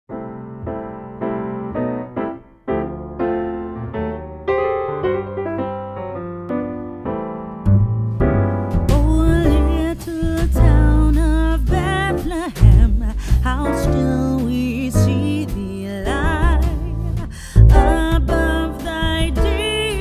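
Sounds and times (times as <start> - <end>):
electric piano chords: 0.1 - 20.0
heavy bass line: 7.7 - 20.0
person singing: 8.9 - 20.0.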